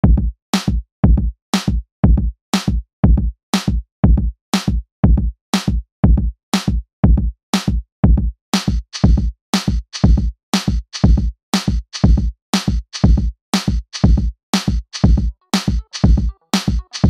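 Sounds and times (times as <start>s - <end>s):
electronic drum machine beat: 4.0s - 17.0s.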